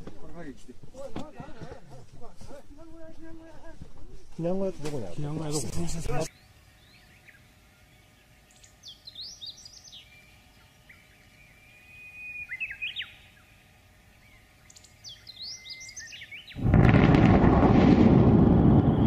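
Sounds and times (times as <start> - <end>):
songbird whistling: 6.3 - 13.5, 14.2 - 16.6.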